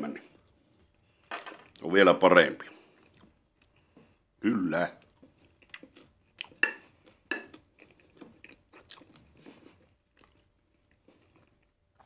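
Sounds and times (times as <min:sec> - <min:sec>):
person chewing food: 0:02.7 - 0:04.3, 0:05.0 - 0:12.0
soft crunching: 0:05.0 - 0:12.0.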